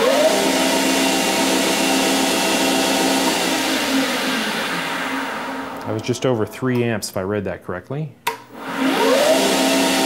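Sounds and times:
lathe whining: 0:00.0 - 0:07.0.

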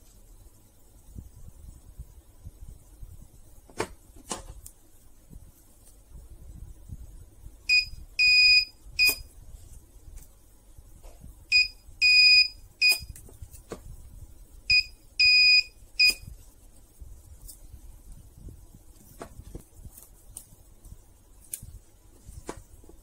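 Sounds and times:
spot welder beeping: 0:07.7 - 0:09.3, 0:11.5 - 0:13.1, 0:14.7 - 0:16.3.

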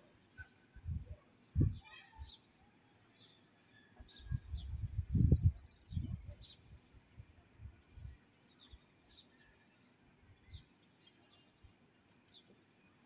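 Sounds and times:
small birds chirping: 0:00.0 - 0:13.0
low rumbling microphone noise: 0:00.8 - 0:01.8, 0:04.3 - 0:08.2.

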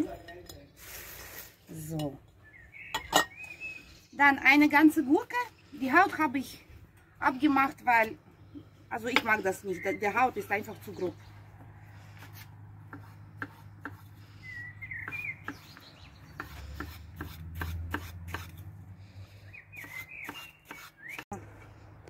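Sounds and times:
knife chopping on wooden board: 0:12.9 - 0:14.0, 0:15.0 - 0:18.5.

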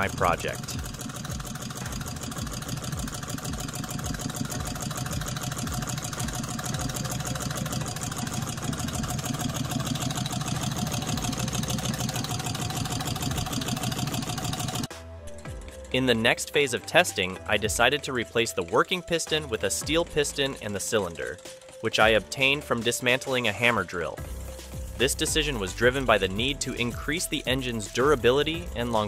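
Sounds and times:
engine mechanical clatter: 0:00.0 - 0:14.9.

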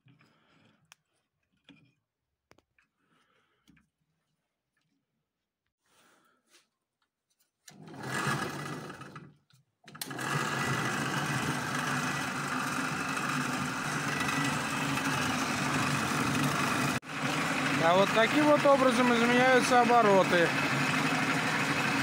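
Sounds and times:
drill press motor humming: 0:09.9 - 0:22.0.

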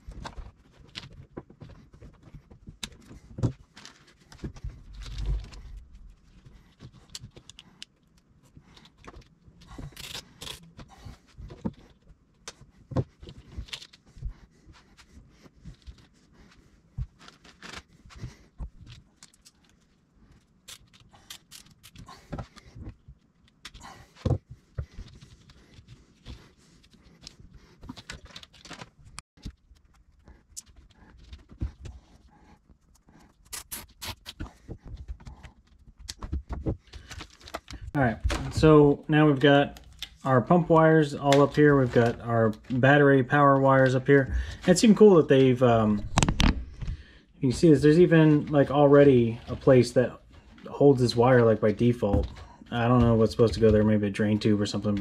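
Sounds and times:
hands handling plastic wire loom: 0:00.0 - 0:31.9.

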